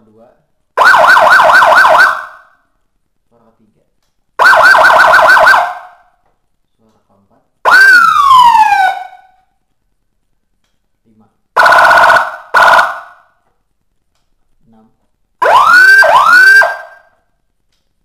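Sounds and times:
falling siren sweep: 7.7 - 9.3, 15.4 - 17.1.

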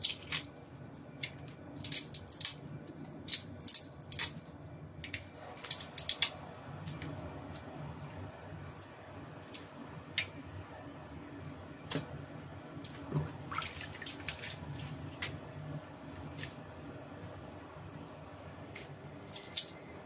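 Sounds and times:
shrimp being peeled by hand: 0.0 - 7.7.

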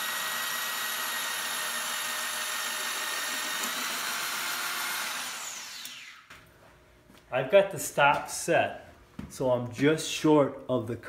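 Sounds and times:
hole saw grinding metal tube: 0.0 - 6.2
saw winding down whine: 0.0 - 6.3.

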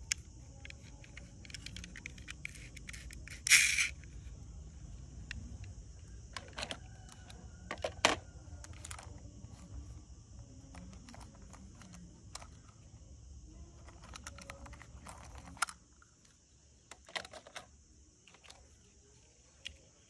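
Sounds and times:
toy cars clacking on plastic tray: 0.1 - 4.0, 6.3 - 9.2, 13.8 - 15.8, 16.9 - 17.7.

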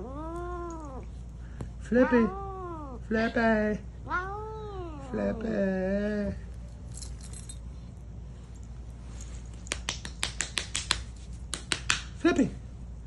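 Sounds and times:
cat meowing: 0.0 - 1.1, 2.0 - 3.0, 4.0 - 5.6.

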